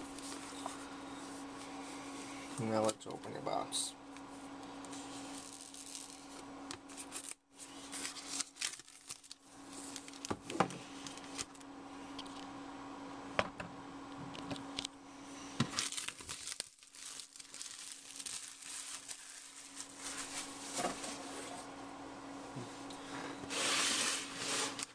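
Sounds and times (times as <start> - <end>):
plastic wrap tearing and crinkling: 4.9 - 12.4, 15.6 - 21.4.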